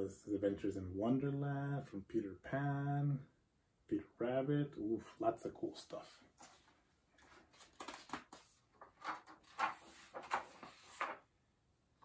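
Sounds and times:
book pages rustling: 6.4 - 11.3.

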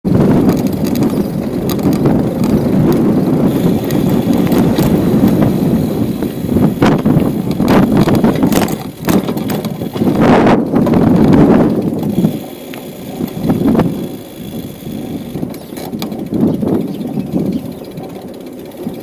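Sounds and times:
bicycle tyres rumbling on asphalt: 0.0 - 19.0
rattling knocks from bumps: 6.9 - 10.2.

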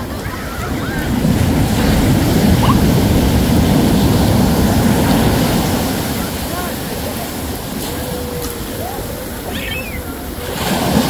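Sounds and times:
ocean surf rushing: 0.0 - 11.0
faint distant voices: 5.8 - 11.0.

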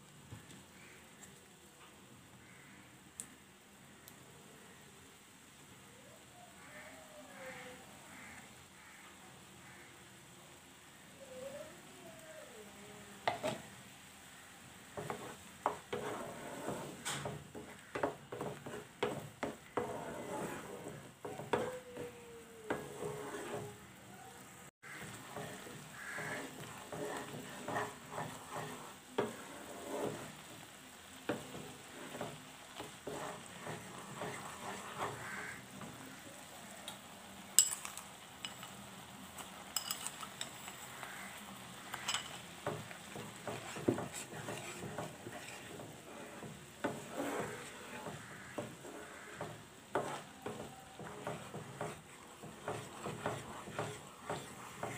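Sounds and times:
low sizzle: 0.0 - 54.9
wooden spatula scraping a pan: 13.2 - 13.8, 14.8 - 36.4, 39.4 - 54.9
jam bubbling: 14.8 - 36.4, 37.5 - 54.9.

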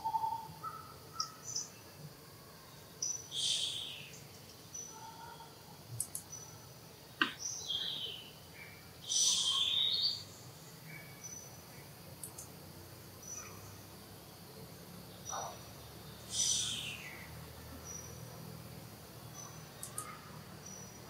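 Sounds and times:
birds chirping: 3.0 - 12.5, 14.6 - 18.5, 19.1 - 21.0
sharp click: 6.0 - 6.3
harsh bird calls: 7.2 - 10.3, 15.2 - 18.2, 19.3 - 20.9.

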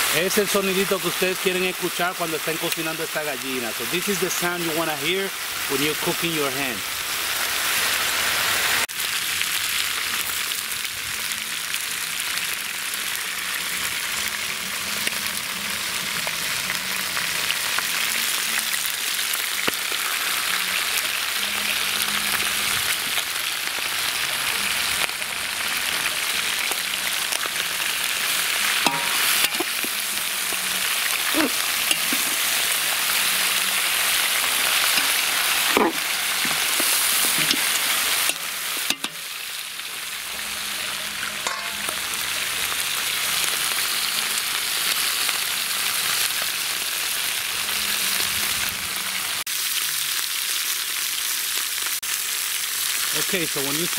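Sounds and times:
meat sizzling in hot oil: 0.0 - 53.9
metal spoon scraping a pot: 28.8 - 30.0, 34.8 - 39.2.

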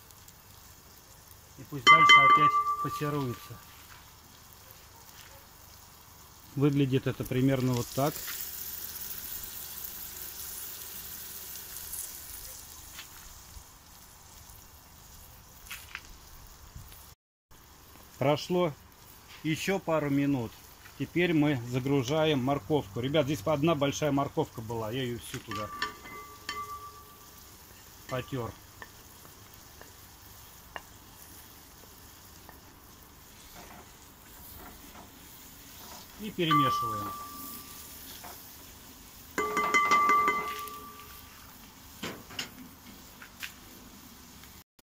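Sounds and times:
onions sizzling in oil: 0.0 - 44.6.

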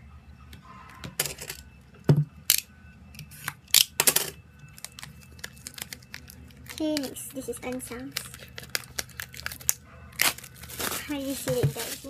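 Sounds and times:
plastic sleeve crinkling: 4.7 - 12.0.

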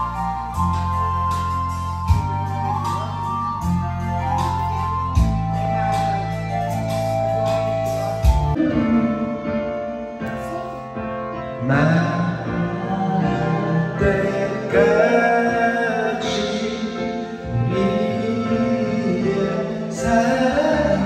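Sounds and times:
karaoke backing track: 0.0 - 21.0
person singing into a microphone: 8.6 - 10.9, 11.5 - 21.0.

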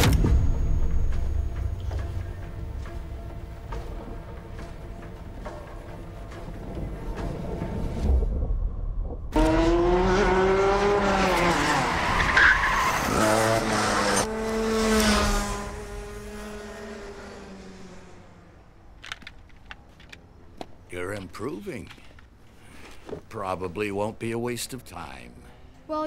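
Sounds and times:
low rumble: 0.0 - 9.6
go-kart engine revving: 9.4 - 18.6
tyres skidding: 9.4 - 23.6.

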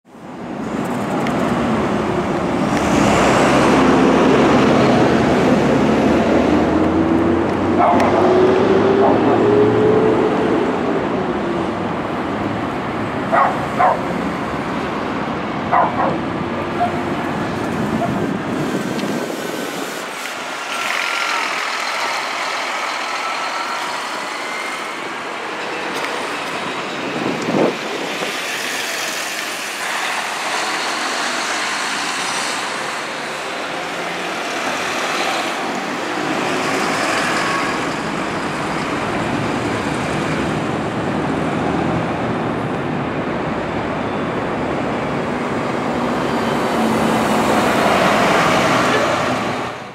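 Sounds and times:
passing traffic noise: 0.0 - 49.9
bus engine rumble: 0.1 - 49.9.

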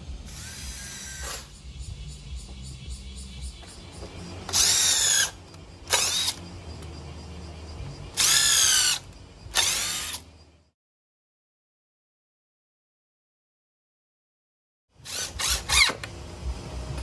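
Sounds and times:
cordless drill drilling into wood: 0.3 - 1.5, 4.5 - 6.4, 8.2 - 10.2, 15.0 - 16.2.

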